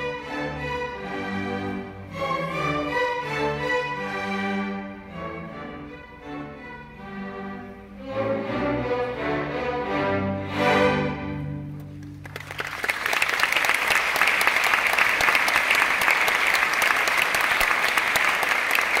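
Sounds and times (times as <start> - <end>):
audience applause: 11.9 - 19.0.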